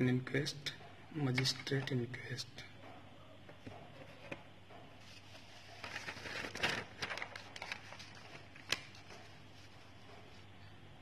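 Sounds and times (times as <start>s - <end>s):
paper rustling and crackling: 5.0s - 10.4s.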